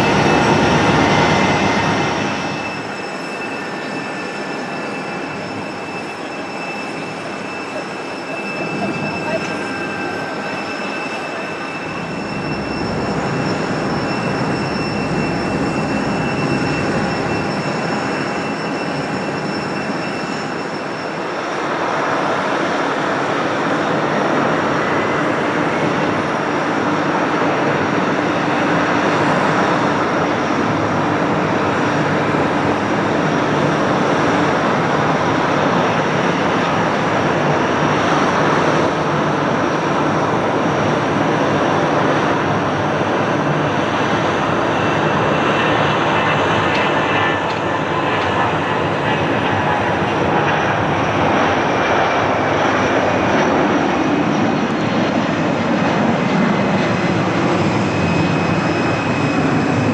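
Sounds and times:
jet engines whining: 0.0 - 59.9.

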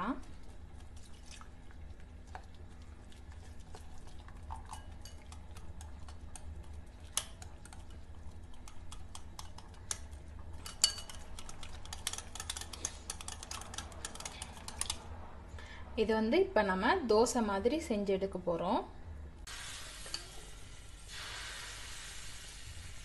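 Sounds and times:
whisk clicking against glass bowl: 4.7 - 15.0.

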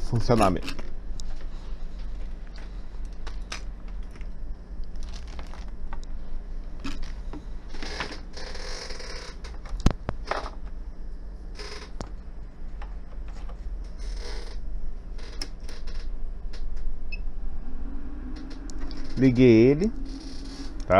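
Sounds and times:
low electrical hum: 0.0 - 20.9
plastic bags rustling: 5.0 - 5.8.

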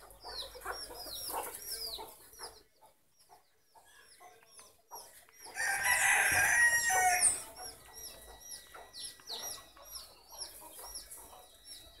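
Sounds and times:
small bird chirping: 0.0 - 12.0
rooster crowing: 5.5 - 7.5.

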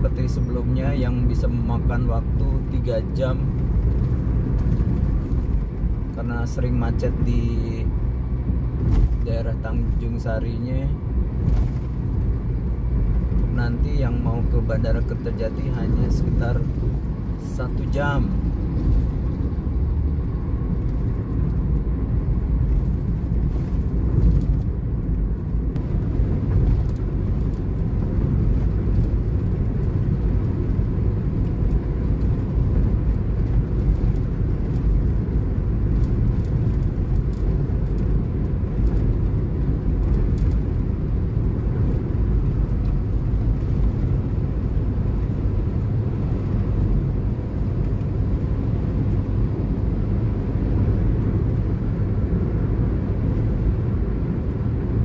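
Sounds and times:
car tyres and engine rumble: 0.0 - 55.0.

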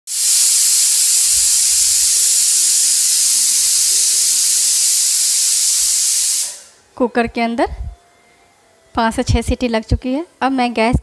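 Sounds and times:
pressure cooker steam hissing: 0.0 - 6.9.

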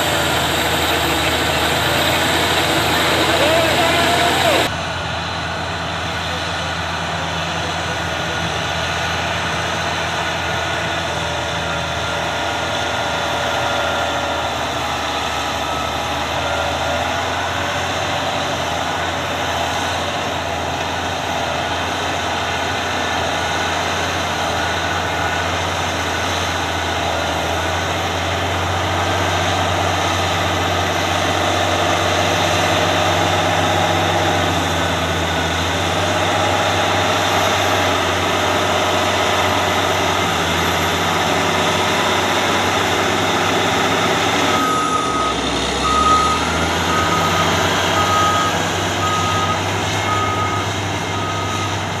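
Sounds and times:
reversing alarm beeping: 0.0 - 4.7, 14.8 - 18.0, 38.7 - 51.9
bulldozer diesel engine running: 0.0 - 52.0.

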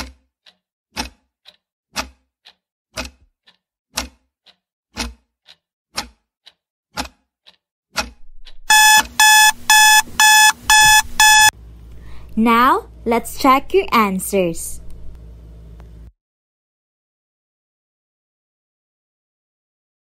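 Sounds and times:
clock ticking: 0.0 - 11.5
alarm clock beeping: 8.7 - 11.5.

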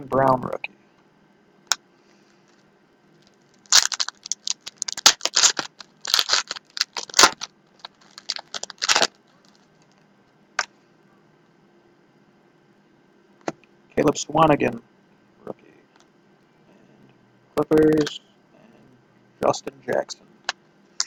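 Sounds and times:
wrapper tearing and crinkling: 3.2 - 9.7.

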